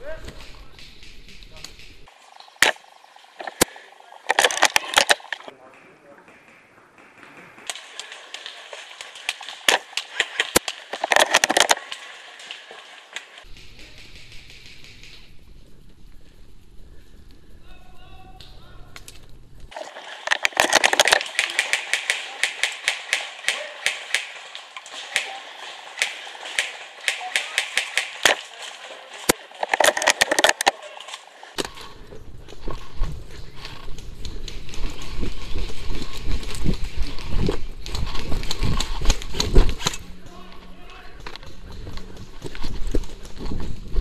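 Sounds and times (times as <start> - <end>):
sharp crack: 0.0 - 15.5, 18.4 - 31.8
airsoft gunfire: 20.8 - 28.6.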